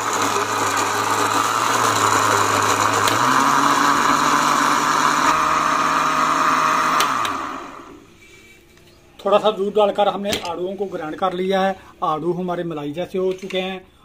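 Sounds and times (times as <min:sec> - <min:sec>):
electric blender running: 0:00.0 - 0:08.0.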